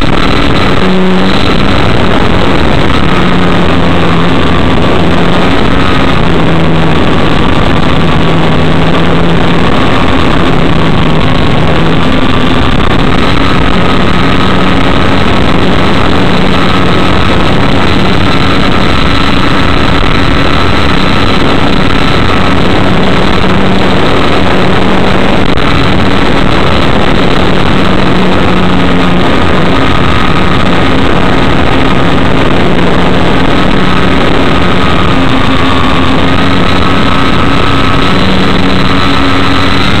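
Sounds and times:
rushing noise: 0.0 - 40.0.

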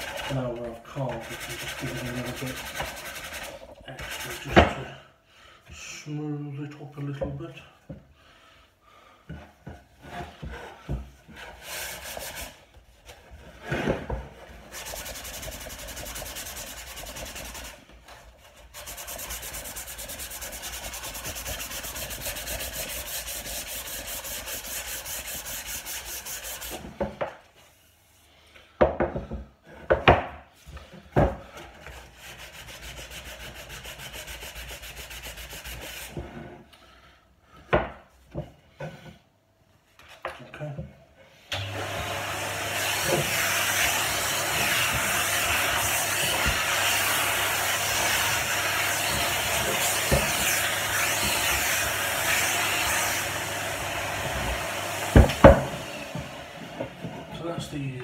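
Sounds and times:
sandpaper scratching on wood: 0.0 - 4.6, 11.6 - 12.6, 14.7 - 17.9, 18.6 - 26.8, 32.1 - 36.2, 42.8 - 53.2.

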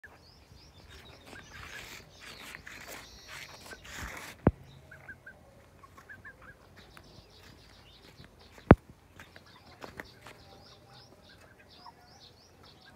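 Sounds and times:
chickens chirping: 0.0 - 12.9
rustling: 0.8 - 4.7.

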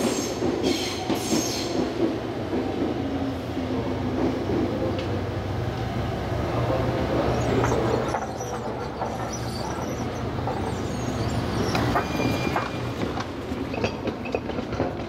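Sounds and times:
train rumbling on tracks: 0.0 - 15.0
high wheel squeal: 7.2 - 13.1.

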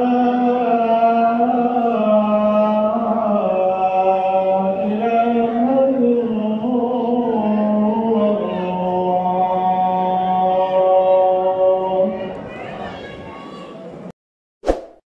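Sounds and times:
man chanting prayer: 0.0 - 12.1.

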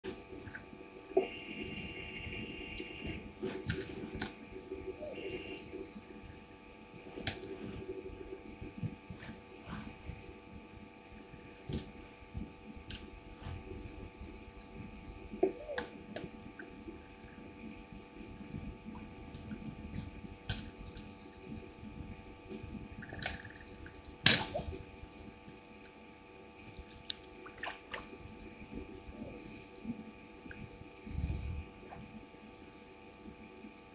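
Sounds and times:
steady multi-tone hum: 0.0 - 33.9
high insect trill: 0.1 - 15.8, 16.4 - 18.9, 20.1 - 33.9
low steady insect trill: 0.1 - 33.9
sharp crack: 24.2 - 24.8.

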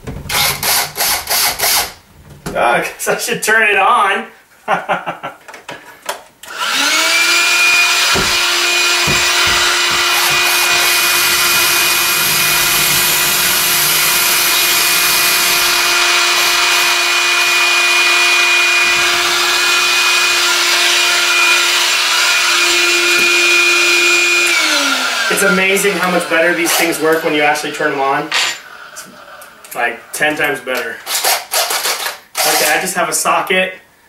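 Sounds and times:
cordless drill boring into wood: 0.3 - 2.0, 6.4 - 28.0, 31.0 - 32.8
vacuum cleaner humming: 6.4 - 29.7.

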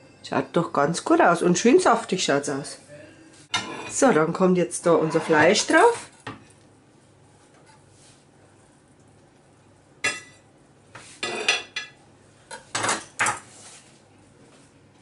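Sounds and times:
utensils clinking on porcelain plate: 11.2 - 13.4.

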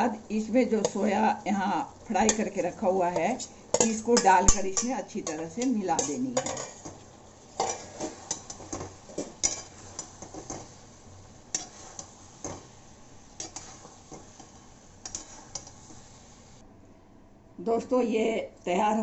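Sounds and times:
spoon clinking and scraping metal pot: 2.2 - 10.8, 11.5 - 12.7, 13.4 - 16.1.

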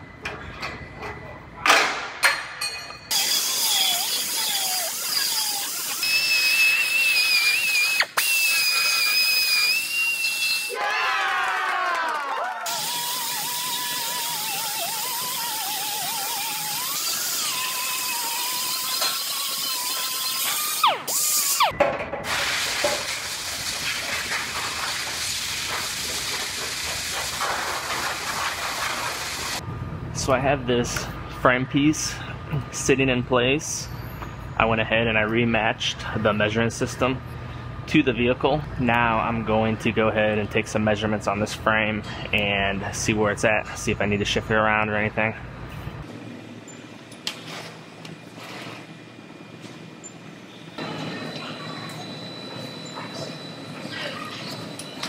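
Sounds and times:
air motor hiss: 3.1 - 10.7, 12.7 - 29.6
belt sander whine on steel: 12.7 - 21.7, 46.2 - 55.0.

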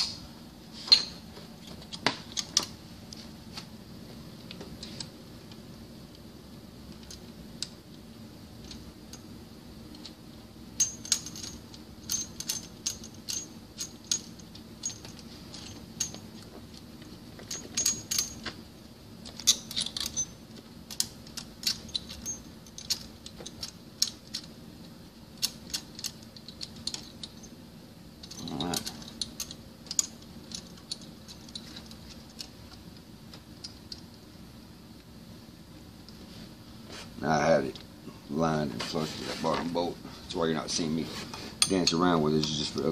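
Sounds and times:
faint steady hum: 0.0 - 42.9
metallic clicks and clinks: 10.8 - 16.8, 17.4 - 18.6, 19.2 - 24.6, 25.4 - 27.6, 28.2 - 32.9
short scraping rub: 38.8 - 40.3.

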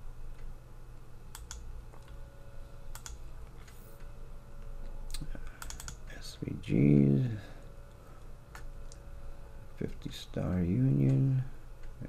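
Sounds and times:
low steady hum: 0.0 - 12.0
computer mouse clicking: 1.3 - 2.2, 2.9 - 4.1, 5.1 - 6.0.

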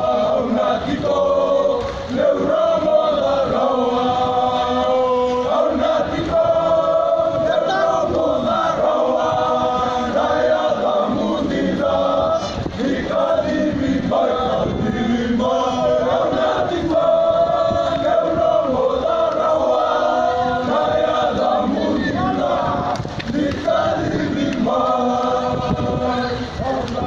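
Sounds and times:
young men singing together: 0.0 - 27.0.

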